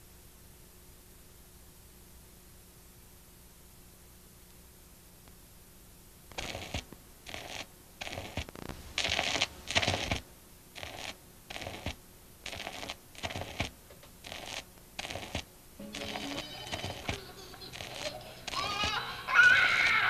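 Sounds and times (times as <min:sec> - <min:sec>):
low tape hiss: 0:00.0 - 0:20.0
scratchy static bursts: 0:06.3 - 0:20.0.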